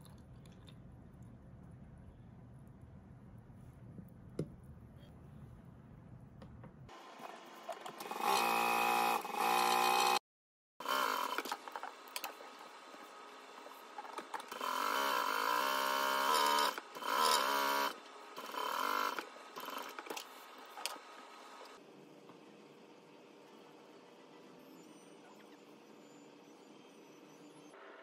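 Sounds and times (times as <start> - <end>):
sewing machine stitching: 14.0 - 21.0.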